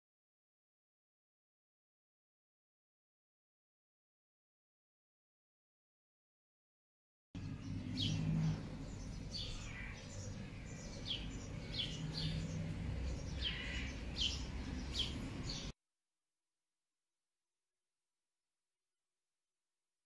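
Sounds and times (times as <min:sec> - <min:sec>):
small birds chirping: 0:07.4 - 0:15.8.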